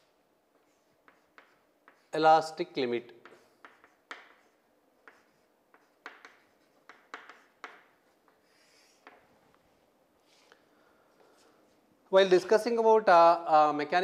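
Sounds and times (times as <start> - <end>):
chalk tapping and scratching: 0.5 - 2.4, 3.2 - 9.6
chalk scraping: 0.6 - 2.3, 3.2 - 9.3.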